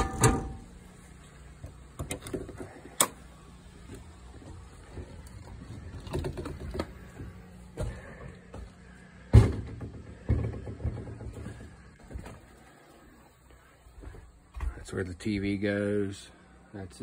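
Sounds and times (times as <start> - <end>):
footsteps on camper floor: 3.8 - 5.9, 6.6 - 8.8, 10.7 - 14.9.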